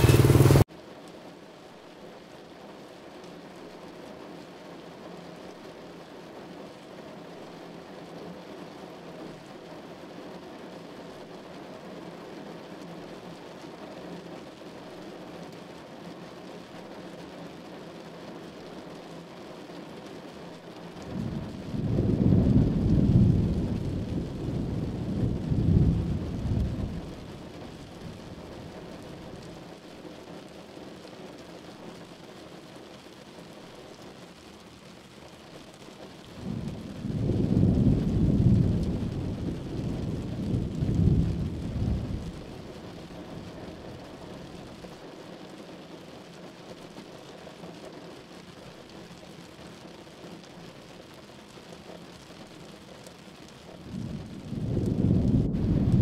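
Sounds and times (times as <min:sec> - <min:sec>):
thunder rolling: 0:00.0 - 0:00.6, 0:21.0 - 0:28.7, 0:36.4 - 0:42.8, 0:53.8 - 0:56.0
heavy rain falling: 0:00.0 - 0:56.0.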